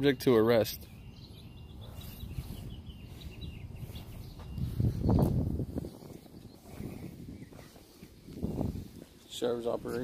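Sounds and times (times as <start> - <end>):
footsteps on concrete: 3.8 - 6.2.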